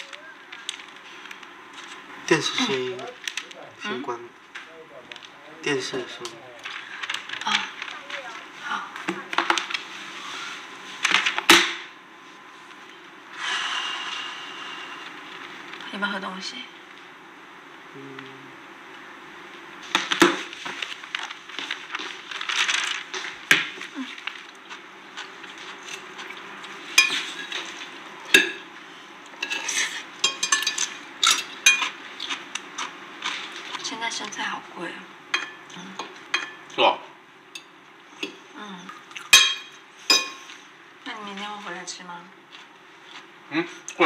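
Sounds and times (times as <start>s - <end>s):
plates and cutlery clinking: 25.2s - 28.7s, 29.4s - 32.0s, 35.4s - 36.8s, 37.6s - 40.5s.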